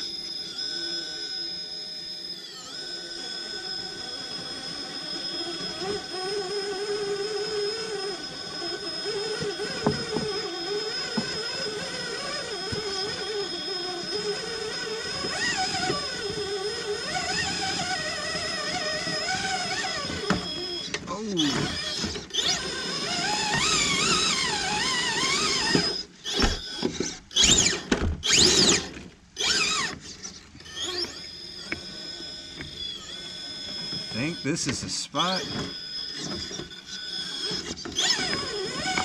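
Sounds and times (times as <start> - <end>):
electric motor whine: 0.0 - 34.5, 35.2 - 39.0.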